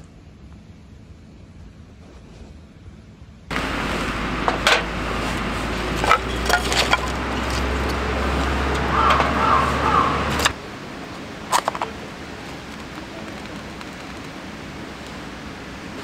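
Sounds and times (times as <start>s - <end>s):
campfire rushing noise: 3.5s - 16.0s.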